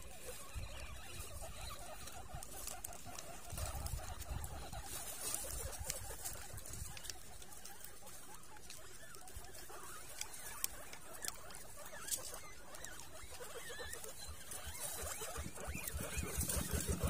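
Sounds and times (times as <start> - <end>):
guinea pigs squeaking: 0.0 - 17.0.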